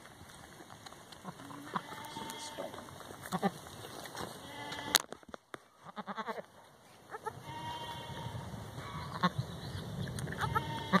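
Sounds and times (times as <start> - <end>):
goats bleating: 1.2 - 3.6, 4.3 - 5.0, 5.8 - 6.5, 7.1 - 9.4, 10.3 - 11.0.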